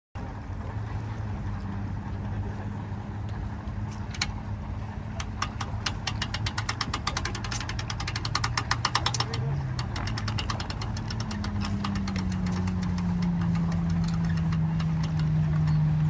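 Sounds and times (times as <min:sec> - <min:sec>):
engine idling: 0:00.2 - 0:16.0
hand winch ratchet clicking: 0:05.2 - 0:16.0.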